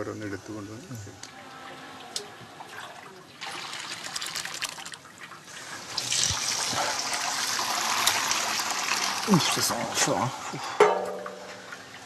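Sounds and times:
plant juice pouring and splashing: 2.6s - 10.8s.

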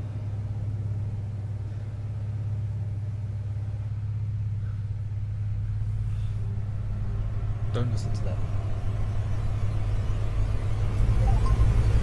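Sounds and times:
low rumbling drone: 8.5s - 12.0s.

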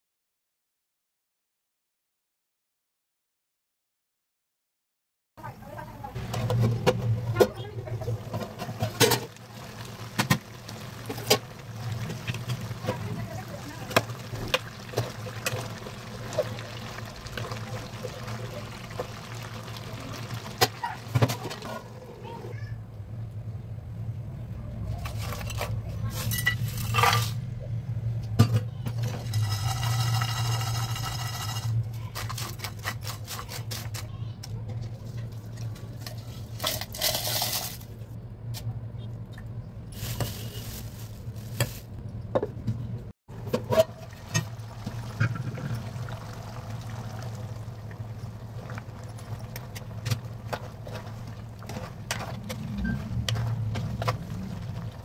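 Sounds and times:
steel utensils and pots clinking: 6.3s - 22.2s, 25.0s - 27.4s, 28.4s - 34.0s, 43.5s - 46.3s
spices pouring into pan: 8.6s - 21.8s, 29.3s - 31.8s.

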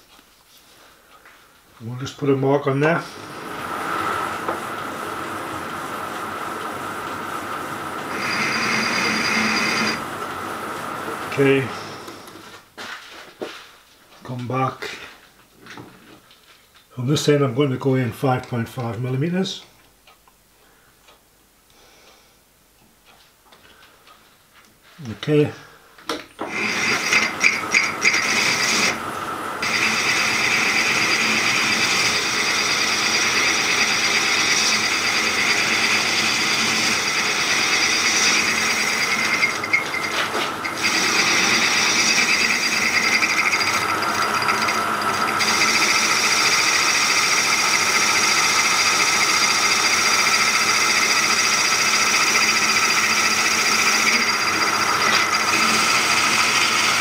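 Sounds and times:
metal lathe cutting: 3.1s - 12.4s, 26.4s - 57.0s.

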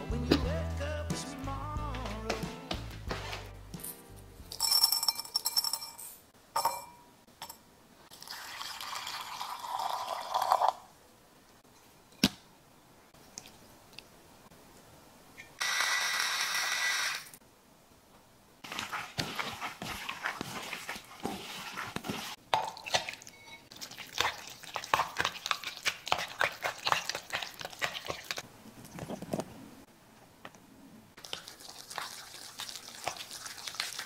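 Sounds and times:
metal bowl clattering on stone: 3.8s - 7.6s.

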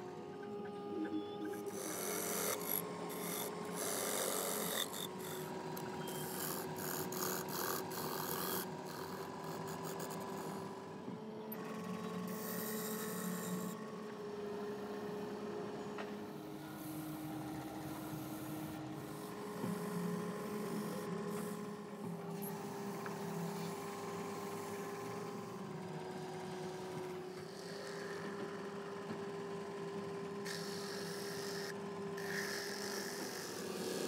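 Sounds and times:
lathe motor hum: 0.0s - 34.0s
turning tool scraping wood: 1.8s - 10.8s.

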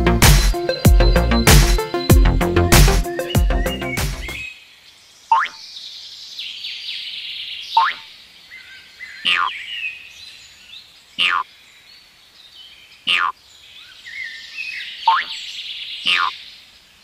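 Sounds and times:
bird-like chirps and twitters: 0.3s - 4.7s, 7.5s - 10.0s, 13.1s - 16.5s.

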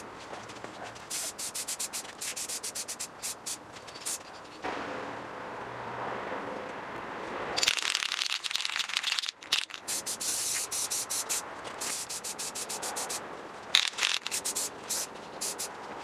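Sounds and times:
spray paint can hissing: 1.1s - 4.5s, 7.6s - 13.2s, 13.8s - 15.7s.

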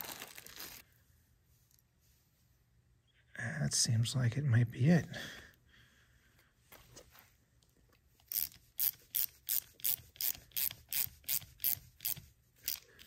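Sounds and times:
hand ratchet clicking: 8.3s - 13.0s.

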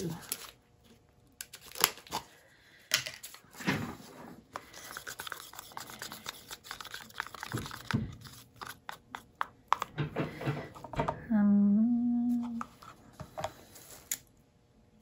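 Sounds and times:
plastic cups rustling and clicking: 1.4s - 11.2s.

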